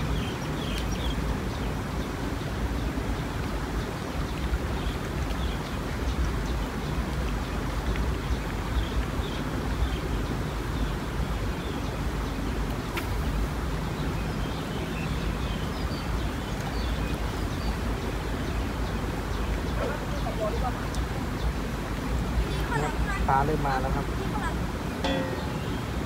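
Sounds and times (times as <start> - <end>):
low river rumble: 0.0 - 26.0
high bird chirps: 25.0 - 26.0.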